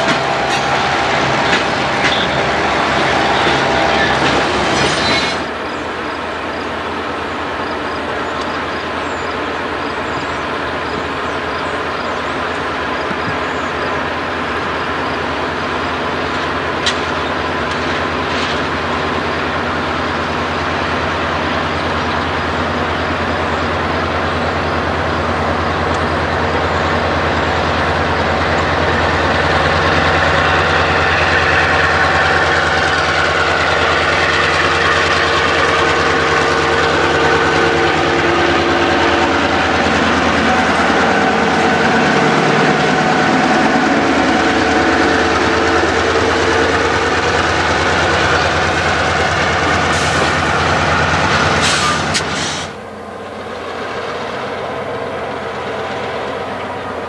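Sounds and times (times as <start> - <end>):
diesel locomotive engine: 0.0 - 57.0
steady pitched whine: 24.4 - 51.4.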